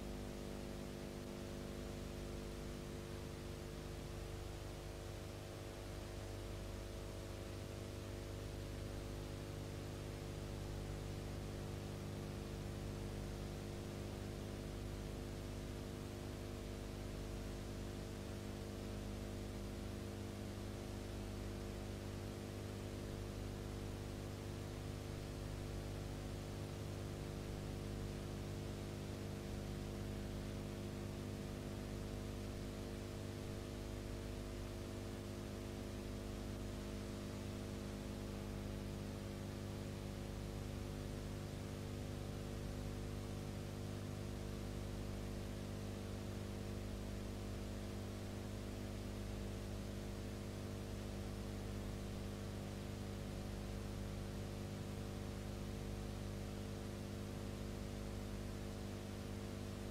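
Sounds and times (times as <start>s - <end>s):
electrical hum: 0.0s - 7.7s.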